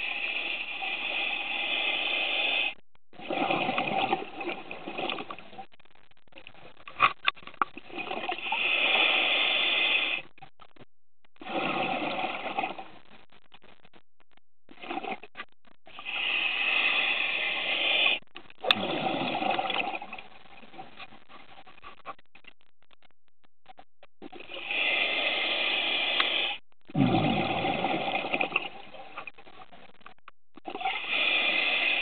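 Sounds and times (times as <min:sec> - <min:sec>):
regulator inhale hiss: 0:00.0 - 0:02.8, 0:08.4 - 0:10.2, 0:16.0 - 0:18.2, 0:24.6 - 0:26.6, 0:31.0 - 0:32.0
diver exhaling bubbles: 0:03.2 - 0:05.3, 0:11.4 - 0:12.9, 0:16.0 - 0:20.2, 0:24.6 - 0:28.8.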